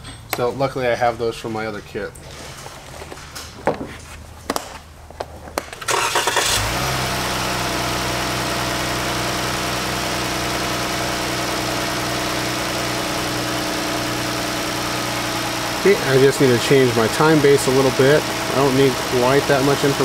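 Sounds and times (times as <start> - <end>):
car engine starting and idling: 5.8 - 20.0.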